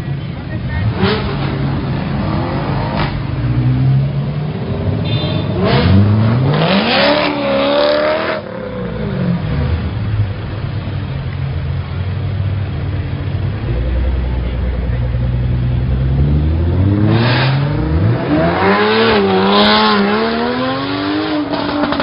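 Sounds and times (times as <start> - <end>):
car revving and accelerating: 0.6 - 10.4, 12.6 - 22.0
sports car engines idling: 8.4 - 17.0.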